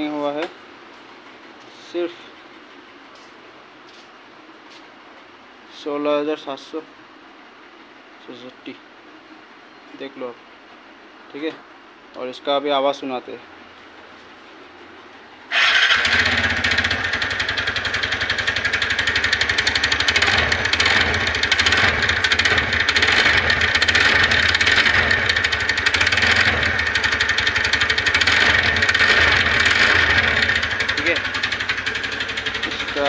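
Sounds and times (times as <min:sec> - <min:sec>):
scooter engine running: 0:15.5 - 0:33.0
rapid ticking rattle: 0:15.6 - 0:33.0.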